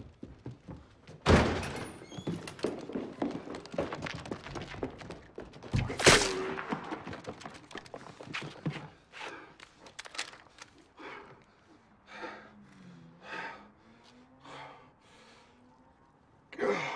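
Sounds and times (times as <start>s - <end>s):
footsteps on hard ground: 2.2s - 9.9s.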